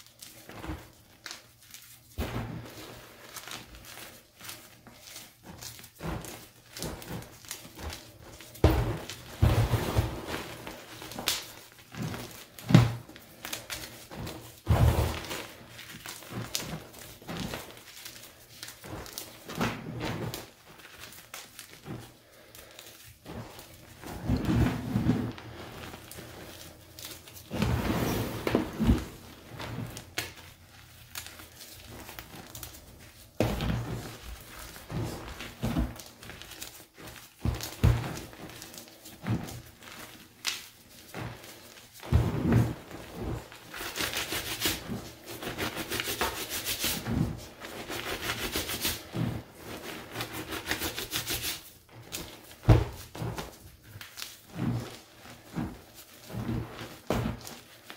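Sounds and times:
gritty powder crumbling: 0.0 - 57.9
chalk crunching: 43.2 - 51.7.

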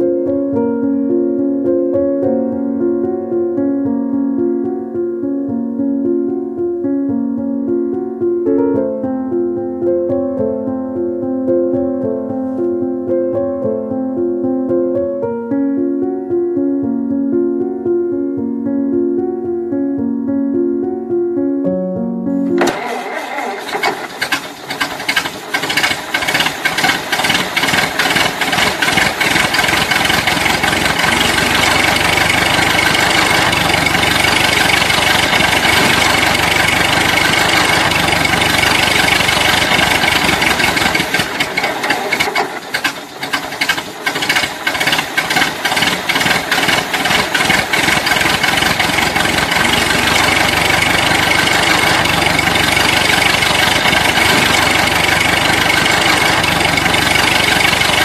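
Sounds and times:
tractor diesel engine chugging: 22.6 - 58.0.

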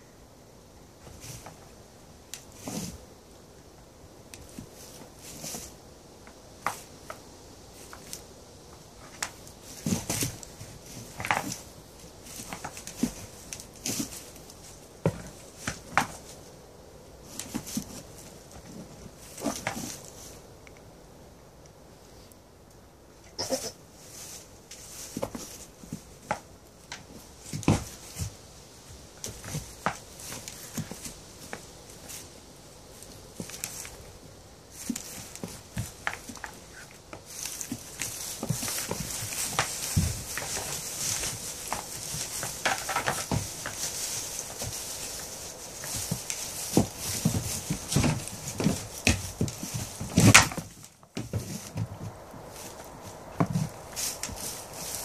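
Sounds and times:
straw rustling: 1.0 - 3.4, 4.4 - 20.6, 23.3 - 55.0
goats knocking heads: 34.8 - 55.0.

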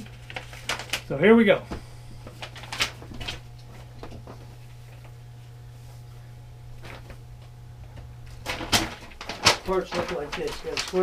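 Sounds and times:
steady low hum: 0.0 - 11.0
light clicks and rustles of paper: 8.5 - 11.0.

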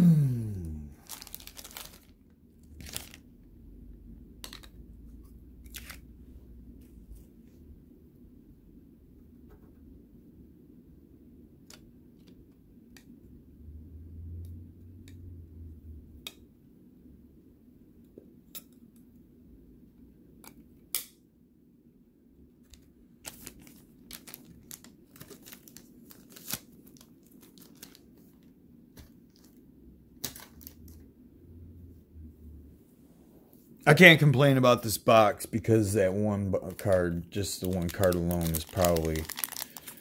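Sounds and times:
trading cards clicking and rustling: 36.6 - 40.0.

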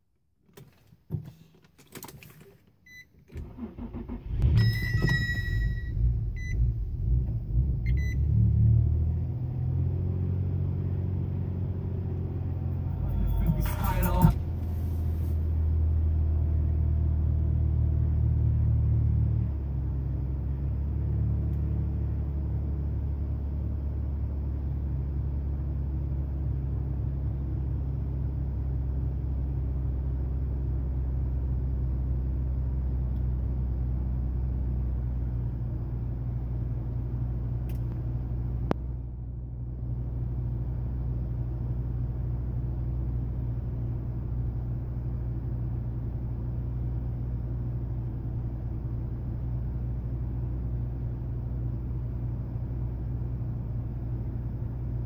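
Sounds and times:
car engine idling: 3.4 - 18.7.

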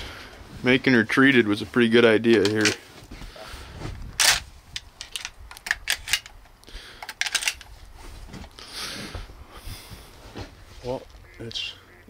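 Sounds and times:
shotgun and gear clicking: 2.2 - 2.8, 4.2 - 7.7
soft rustling: 7.6 - 11.3.

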